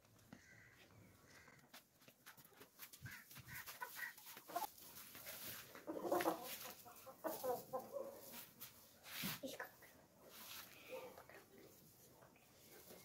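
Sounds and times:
chickens clucking: 1.4s - 8.6s.

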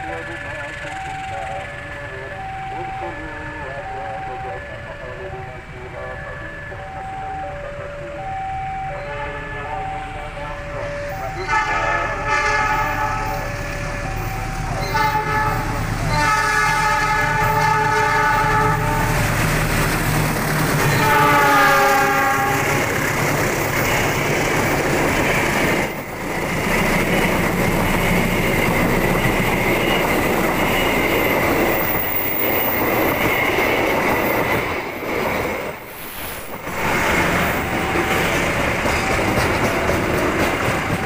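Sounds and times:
locomotive horn: 9.0s - 10.4s, 11.0s - 19.3s, 20.8s - 22.9s, 36.7s - 37.7s
train wheels clattering over rail joints: 36.4s - 41.0s.

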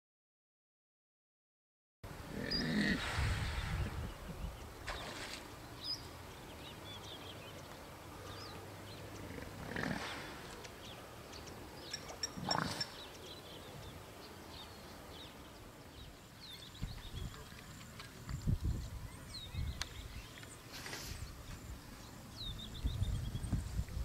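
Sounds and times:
small birds chirping: 2.4s - 24.0s
hippos calling: 8.2s - 10.7s, 11.4s - 13.6s.

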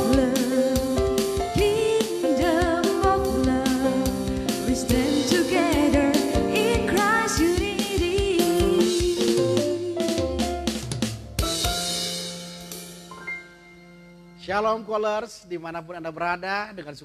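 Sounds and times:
woman singing with vibrato: 0.0s - 10.0s
electronic drum beat: 0.0s - 13.0s
piano: 0.0s - 15.5s.

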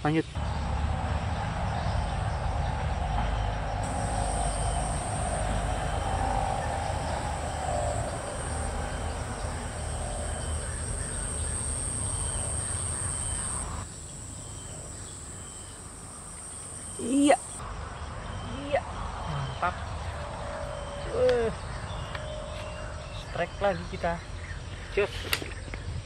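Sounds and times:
low rumble: 0.4s - 13.8s
lower hazy hum: 0.4s - 15.1s
insects high-pitched buzz: 3.8s - 17.6s.

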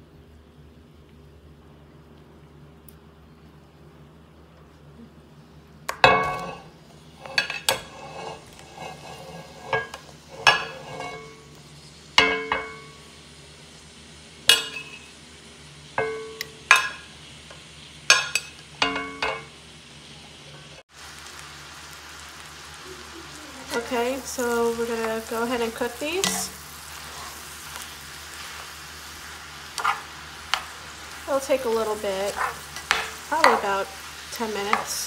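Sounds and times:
butter sizzling: 5.8s - 35.0s
utensil clinking on skillet: 7.2s - 11.4s, 14.5s - 15.1s, 16.0s - 17.1s, 18.1s - 19.5s, 26.2s - 27.9s, 29.8s - 30.8s, 32.3s - 33.8s, 34.6s - 35.0s.

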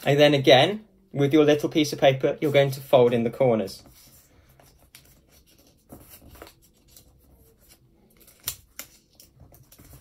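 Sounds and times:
paper rustling and creasing: 3.8s - 10.0s.

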